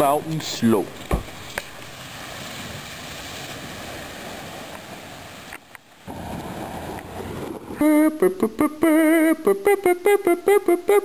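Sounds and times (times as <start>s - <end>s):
tyres on gravel: 0.0s - 8.0s
truck engine: 6.1s - 8.6s.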